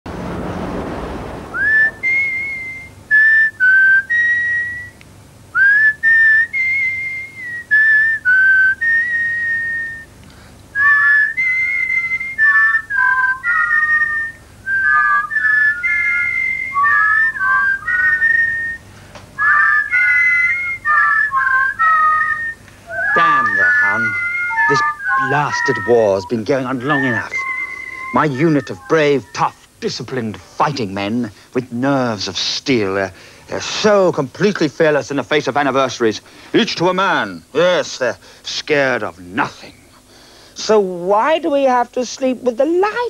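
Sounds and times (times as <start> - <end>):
second whistled harmony: 1.5 - 5.0, 5.6 - 10.1, 10.8 - 28.9
whistled marching tune: 1.5 - 5.0, 5.6 - 10.1, 10.8 - 29.3.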